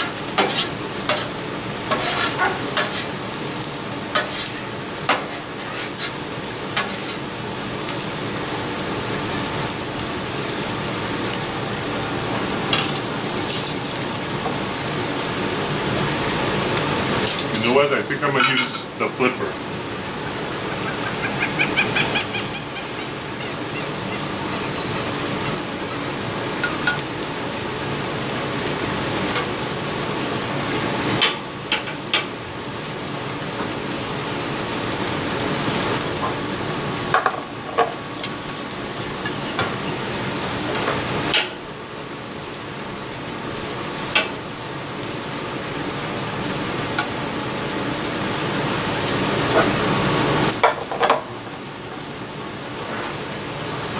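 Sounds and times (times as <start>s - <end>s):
metal flipper scraping griddle: 0.0s - 3.2s, 4.1s - 6.2s, 6.8s - 7.3s
meat sizzling on a griddle: 0.0s - 53.9s.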